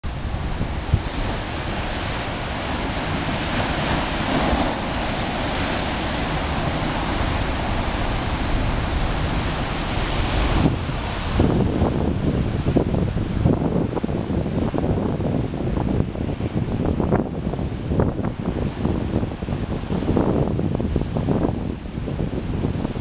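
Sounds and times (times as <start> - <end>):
ocean surf breaking on rocks: 0.1 - 15.5.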